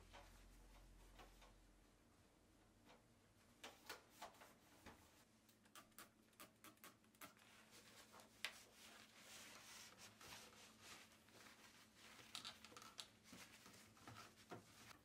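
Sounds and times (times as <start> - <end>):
cloth rubbing on metal: 7.4 - 15.0.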